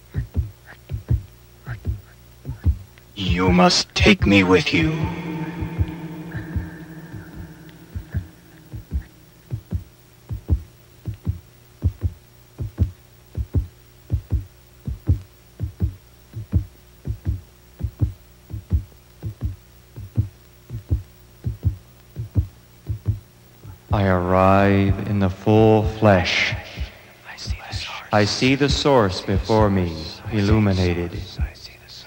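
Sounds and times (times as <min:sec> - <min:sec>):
heartbeat thumping: 0:00.0 - 0:03.6, 0:04.8 - 0:24.0, 0:26.5 - 0:27.0
low steady hum: 0:00.0 - 0:32.0.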